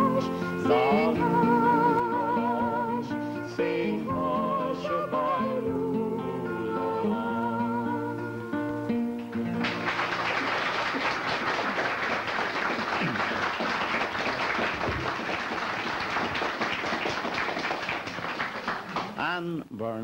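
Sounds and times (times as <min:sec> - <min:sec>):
guitar: 0:00.0 - 0:12.3
audience applause: 0:09.4 - 0:19.2.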